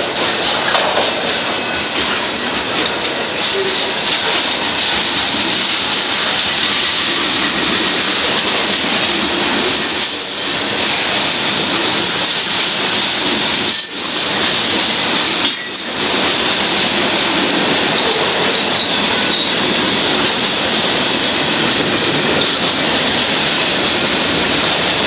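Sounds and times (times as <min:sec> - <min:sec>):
train wheels clattering on rail: 0:00.0 - 0:25.0
high squeal: 0:09.7 - 0:10.8.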